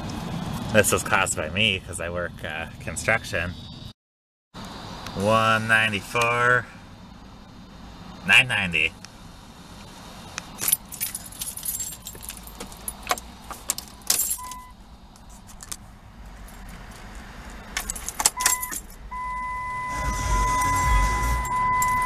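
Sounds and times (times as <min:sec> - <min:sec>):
engine low rumble: 0:00.0 - 0:03.9, 0:04.6 - 0:22.0
keys jangling: 0:10.6 - 0:14.6, 0:17.8 - 0:19.0
steady electronic tone: 0:19.1 - 0:22.0
short electronic beep: 0:19.2 - 0:22.0.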